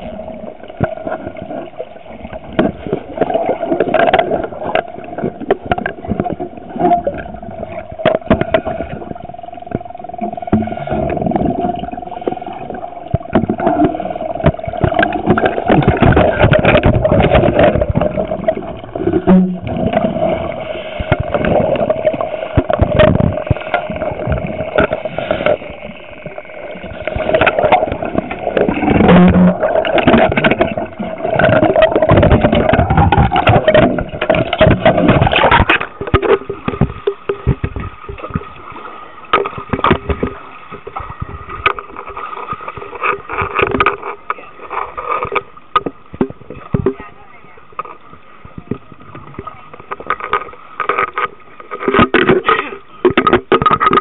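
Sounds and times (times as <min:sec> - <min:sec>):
regulator bubbles rushing: 0:00.0 - 0:38.7
boat engine whine underwater: 0:00.0 - 0:52.0.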